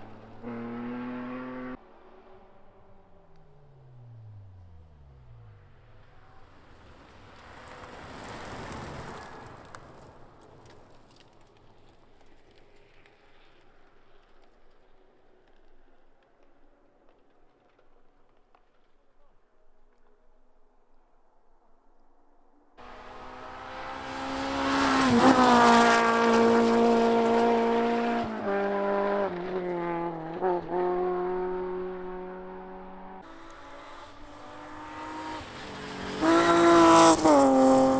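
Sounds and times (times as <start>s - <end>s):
rally car engine passing by: 0.0s - 10.7s, 22.8s - 37.9s
tyres rolling on gravel: 6.7s - 15.2s.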